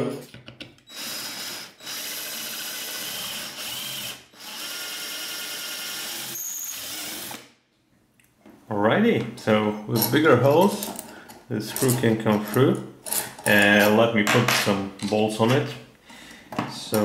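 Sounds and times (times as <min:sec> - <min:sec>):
power drill drilling metal: 0:00.9 - 0:07.5.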